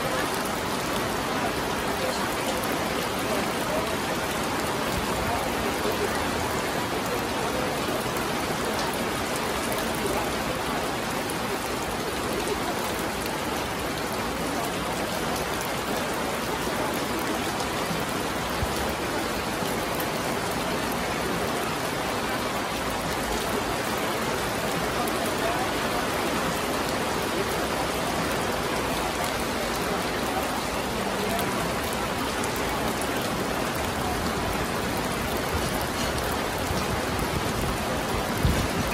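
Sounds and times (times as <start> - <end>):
rain on stone paving and grass: 0.0 - 38.9.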